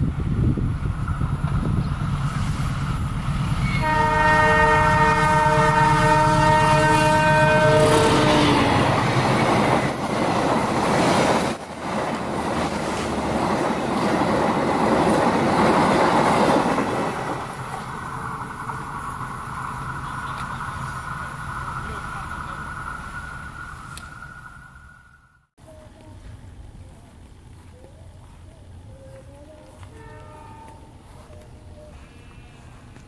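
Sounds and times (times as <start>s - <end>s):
train wheels clattering on rails: 0.9s - 24.5s
train horn chord: 3.6s - 9.0s, 29.8s - 31.2s.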